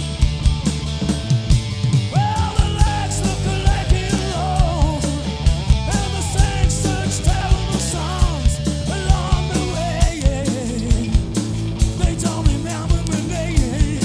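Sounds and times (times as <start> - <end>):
drum kit beat: 0.0 - 14.0
electric bass: 0.0 - 14.0
electric guitar: 0.0 - 14.0.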